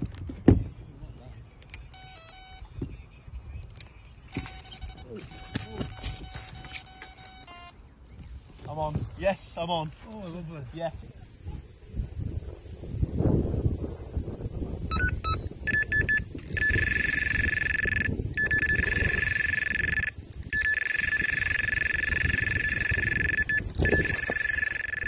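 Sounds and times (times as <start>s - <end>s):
bite alarm beeps and tone: 1.9s - 2.7s, 4.3s - 7.8s, 14.9s - 25.0s.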